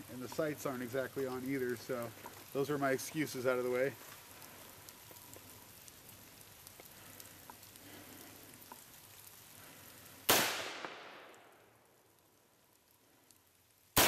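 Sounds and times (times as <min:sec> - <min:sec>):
gunshot: 0:10.3 - 0:11.3.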